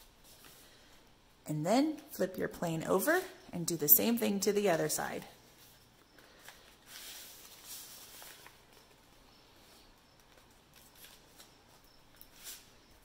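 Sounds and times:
paper rustling and folding: 5.5s - 13.0s.

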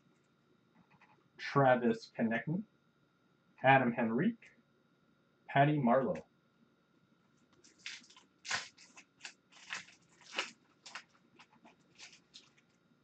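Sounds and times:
foil wrapper crinkling and tearing: 7.5s - 12.8s.

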